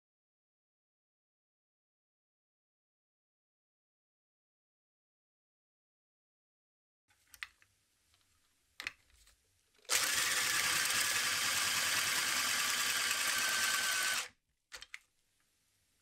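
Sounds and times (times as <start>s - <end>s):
pencil sharpener shaving pencil: 9.9s - 14.9s.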